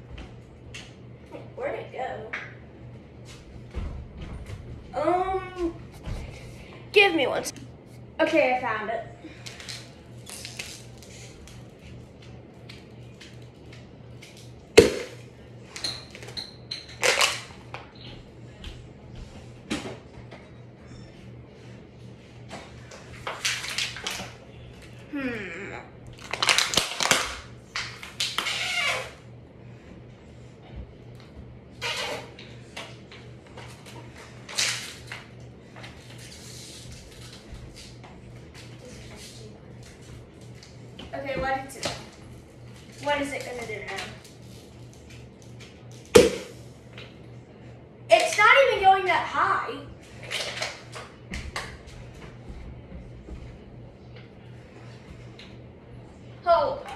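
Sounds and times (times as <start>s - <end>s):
ceiling fan humming: 0.0s - 56.9s
low pulsing hum: 24.2s - 28.1s.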